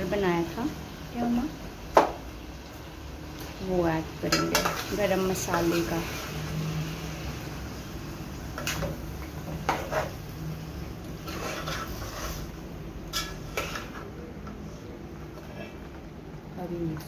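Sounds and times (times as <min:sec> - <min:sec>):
spatula scraping a pot: 0:09.7 - 0:10.2, 0:11.2 - 0:14.2.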